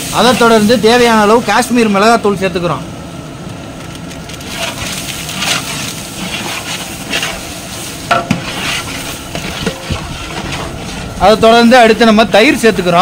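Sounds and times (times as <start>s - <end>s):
oil sizzling: 0.0s - 1.8s, 3.6s - 12.4s
spoon stirring and scraping pot: 4.4s - 11.2s.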